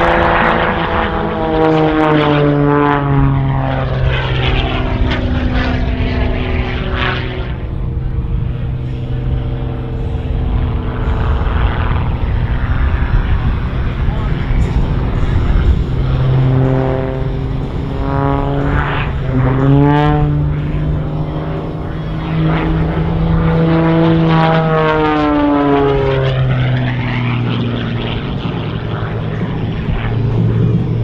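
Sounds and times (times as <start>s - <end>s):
propeller plane engine droning: 0.0s - 31.0s.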